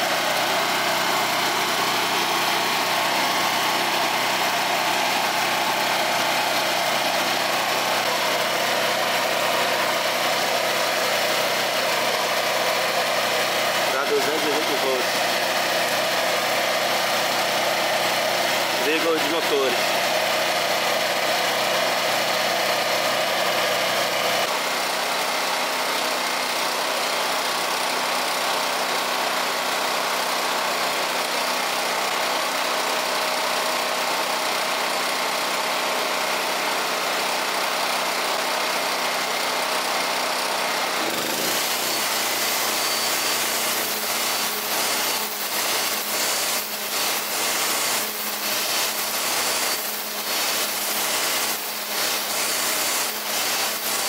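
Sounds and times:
string trimmer cutting grass: 0.0s - 29.3s, 36.8s - 54.0s
petrol generator running: 0.0s - 54.0s.

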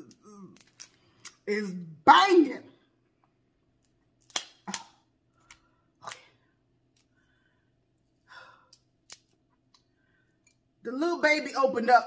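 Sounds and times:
crab shells cracking: 0.1s - 1.4s, 3.8s - 6.3s, 8.7s - 9.4s.

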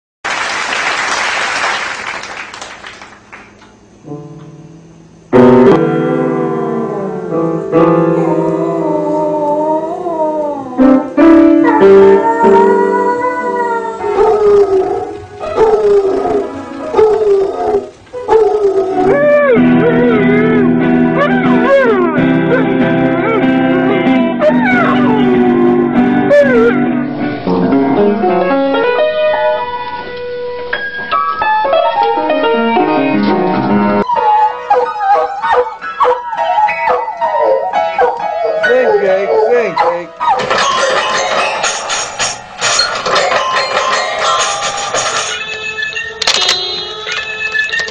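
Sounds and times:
instrumental music: 4.0s - 47.9s
piano melody: 4.0s - 47.9s
dog howling: 7.9s - 27.0s, 34.0s - 40.4s.

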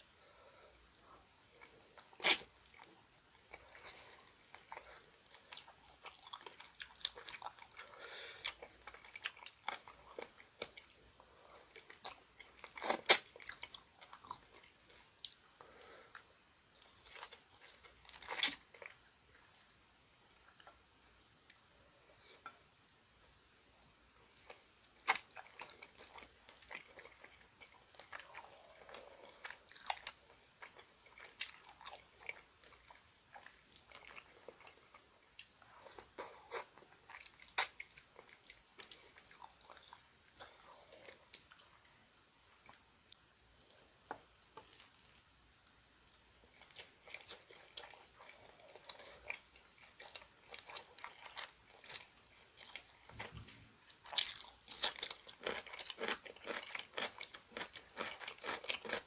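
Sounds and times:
wet chewing with crunches: 42.6s - 45.2s, 46.5s - 59.0s.

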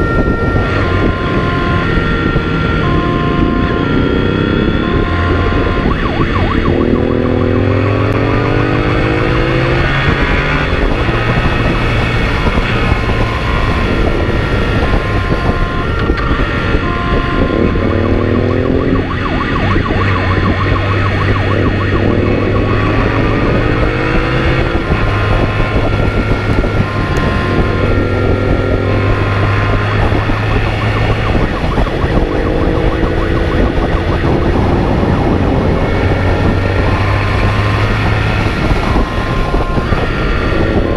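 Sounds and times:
motorcycle engine accelerating: 0.0s - 40.9s
two-tone siren: 0.0s - 40.9s.

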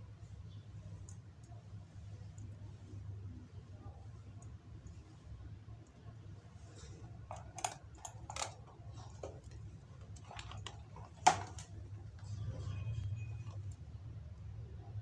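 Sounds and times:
clicks and knocks handling a box: 7.0s - 12.7s.

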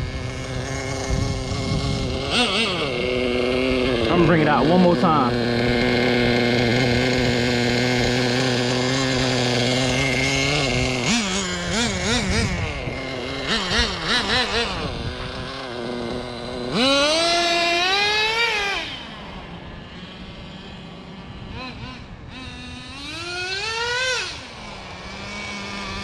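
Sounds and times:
small nitro engine revving: 0.0s - 26.0s.

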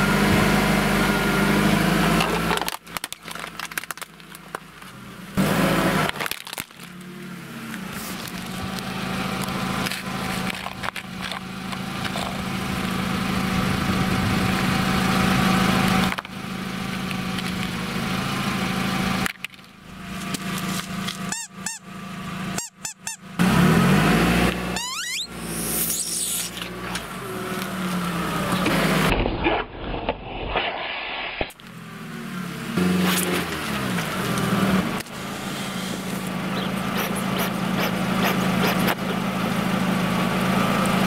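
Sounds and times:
car engine humming: 0.0s - 29.1s, 31.6s - 41.0s
plastic and can crushing: 2.3s - 4.6s, 6.1s - 7.0s, 9.9s - 12.4s.

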